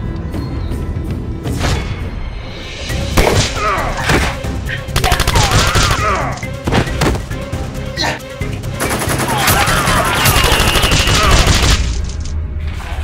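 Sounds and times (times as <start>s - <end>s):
action music: 0.1s - 12.8s
gunshots: 5.0s - 6.0s, 8.8s - 12.2s
whistling glides: 10.2s - 11.3s.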